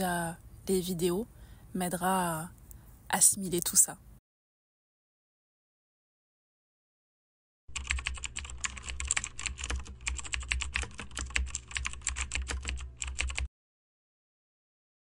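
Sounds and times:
rapid typing on keyboard: 7.7s - 13.5s.

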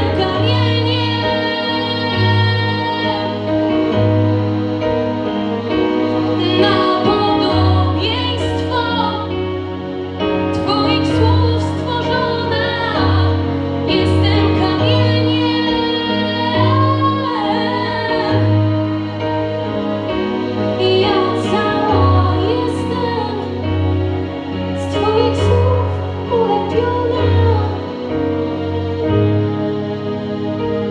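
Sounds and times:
young woman singing into microphone: 0.0s - 3.5s, 6.4s - 9.4s, 10.5s - 18.6s, 20.8s - 23.7s, 24.8s - 28.0s
instrumental accompaniment: 0.0s - 30.9s.

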